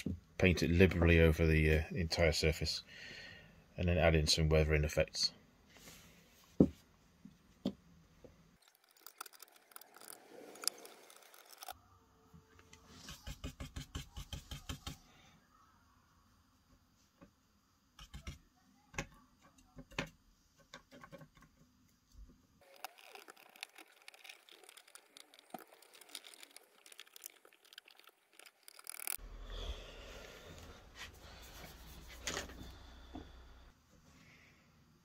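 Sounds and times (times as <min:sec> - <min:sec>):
paintbrush scrubbing and tapping: 0:12.8 - 0:15.0.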